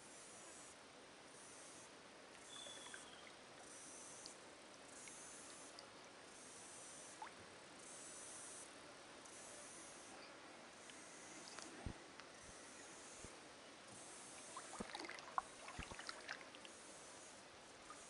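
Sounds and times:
faint bird chirps: 2.4 - 5.7, 12.3 - 13.3
high-pitched insect buzz: 12.4 - 13.3.

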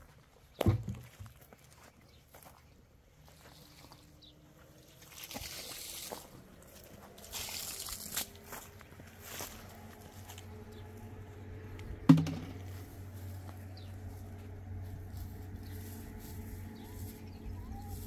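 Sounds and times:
low hum: 6.3 - 18.0
sharp bang: 12.1 - 12.7.

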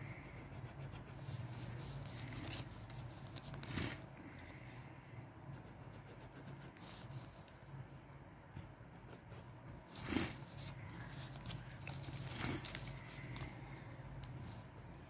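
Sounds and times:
marker scratching across paper: 0.0 - 4.0
faint low hum: 0.0 - 15.0.

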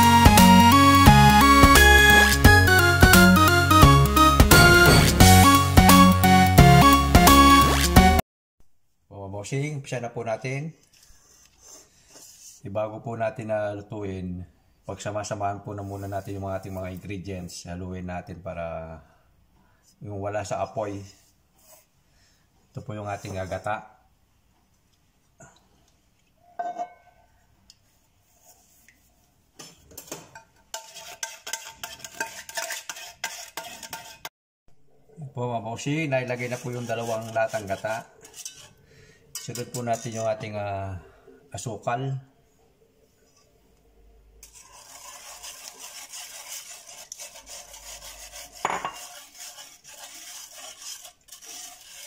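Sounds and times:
wire whisk scraping a pot: 29.7 - 34.3, 36.1 - 40.6, 44.4 - 52.0
whisk clinking on pot: 30.0 - 34.3, 36.3 - 40.5, 44.4 - 52.0.

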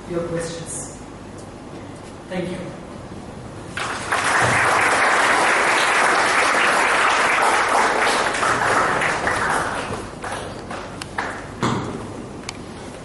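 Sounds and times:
audience applauding: 3.8 - 11.5.

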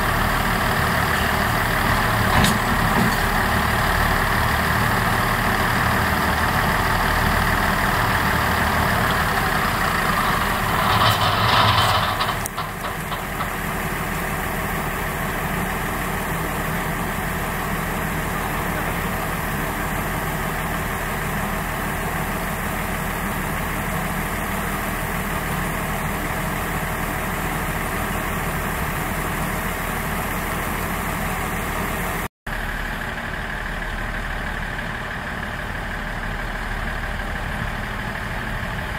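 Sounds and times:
diesel engines idling: 0.0 - 38.9.

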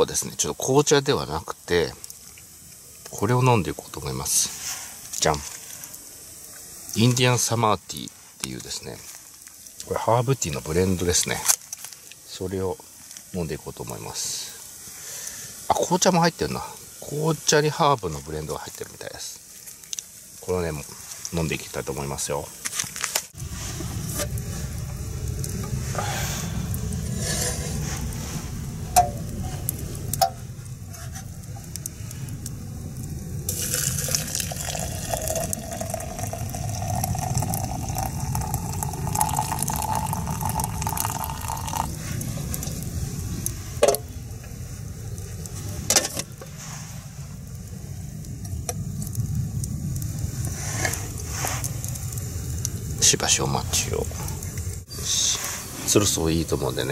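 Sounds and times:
steady low rumble: 23.4 - 56.9
hot water pouring into glass: 31.4 - 44.1.

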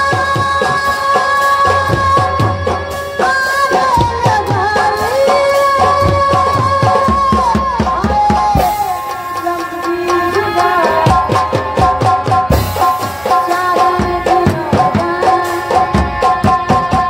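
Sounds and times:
woman singing: 0.0 - 12.0, 12.8 - 17.0
hand drum beats: 0.0 - 17.0.

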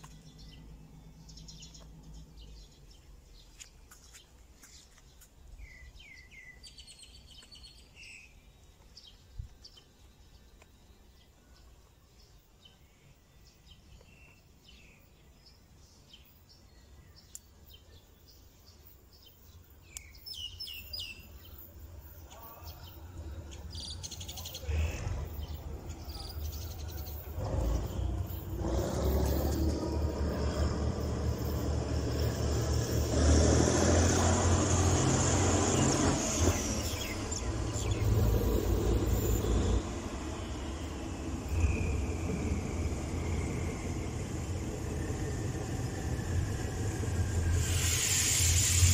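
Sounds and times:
diesel locomotive engine rumble: 0.0 - 4.6, 21.2 - 48.9
birds chirping: 0.0 - 48.9.

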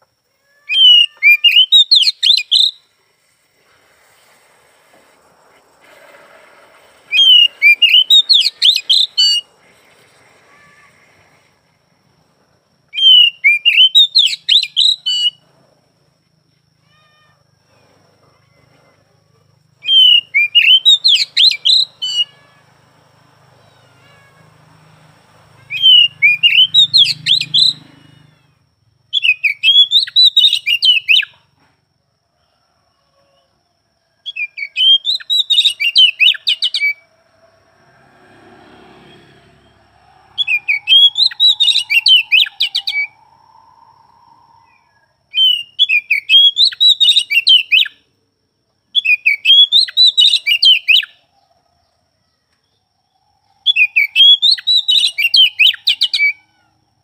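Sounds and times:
bird singing rapid high notes: 7.1 - 9.5, 25.7 - 28.2, 40.4 - 43.2.

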